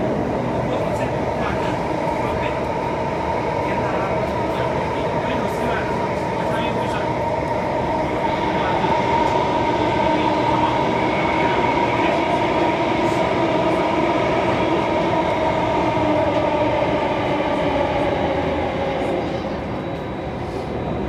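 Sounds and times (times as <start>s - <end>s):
metro train running: 0.0s - 21.0s.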